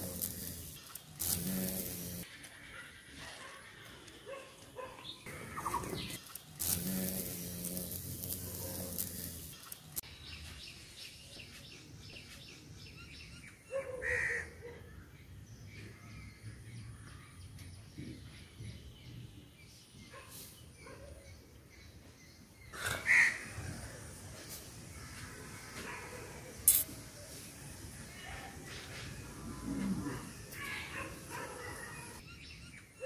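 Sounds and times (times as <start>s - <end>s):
hiss: 0.0s - 2.3s, 6.2s - 10.0s, 26.5s - 27.7s
birds calling: 3.7s - 10.5s.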